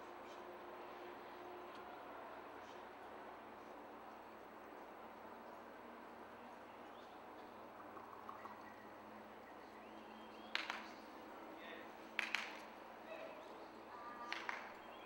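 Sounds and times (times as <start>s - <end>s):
faint distant voices: 9.0s - 15.0s.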